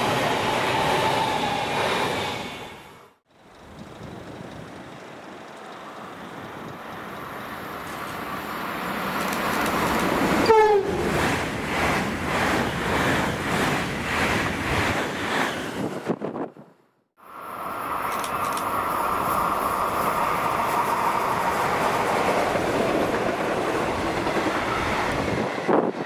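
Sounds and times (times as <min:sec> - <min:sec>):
train passing: 0:00.0 - 0:16.6, 0:17.2 - 0:26.0
train horn toot: 0:10.4 - 0:11.1.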